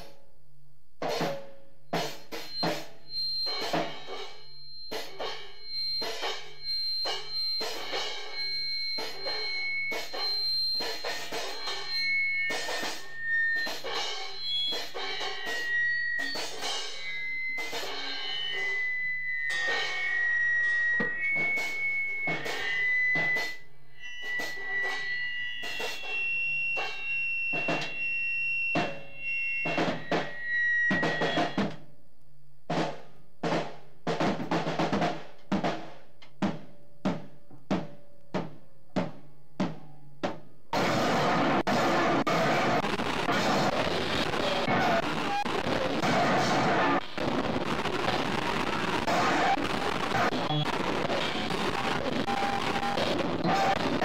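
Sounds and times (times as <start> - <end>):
drums clattering: 1.0 - 31.9, 32.7 - 54.0
high whining tones: 1.9 - 31.8.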